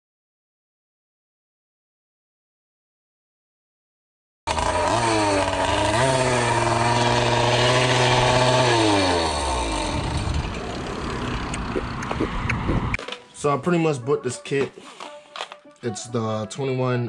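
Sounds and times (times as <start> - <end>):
small engine revving high: 4.5 - 12.9.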